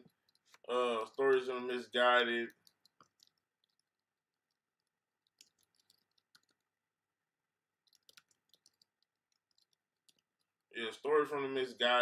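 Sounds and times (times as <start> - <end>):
faint computer clicking: 0.0 - 6.7, 7.8 - 10.6.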